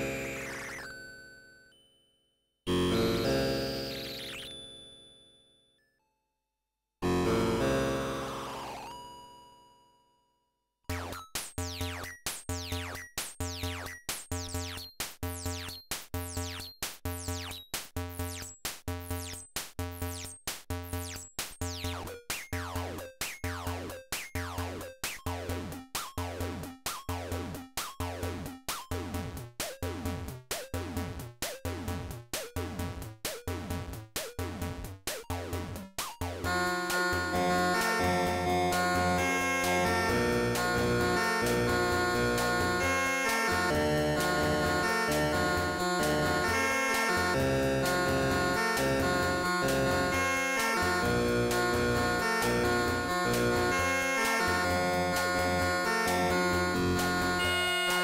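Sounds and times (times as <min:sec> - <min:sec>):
synthesizer sequenced pattern: 0:10.9 - 0:58.0.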